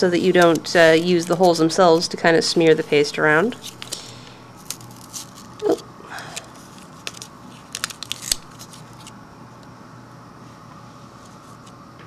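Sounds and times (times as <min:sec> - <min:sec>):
tape peeling with crackles: 0:03.5 - 0:09.2
tearing sounds: 0:03.6 - 0:09.2.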